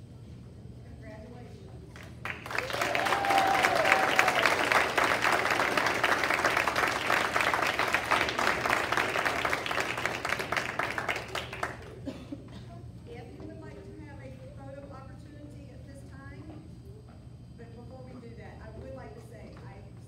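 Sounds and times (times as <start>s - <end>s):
audience applauding: 2.0s - 12.1s.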